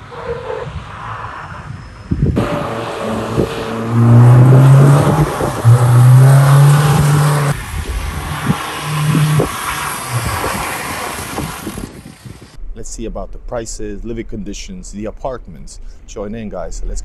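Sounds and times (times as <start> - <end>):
cars driving past: 0.0 - 11.9
loud steady engine drone: 2.3 - 12.6.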